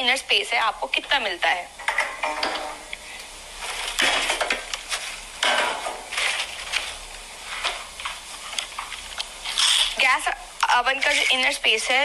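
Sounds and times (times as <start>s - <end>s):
plastic wrapping crinkling: 6.0s - 10.0s.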